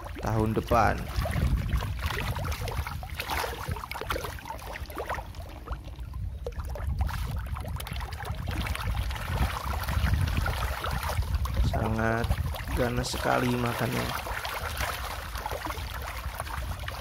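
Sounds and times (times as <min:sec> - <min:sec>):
fish splashing at water surface: 0:00.0 - 0:17.0
steady low rumble: 0:00.0 - 0:17.0.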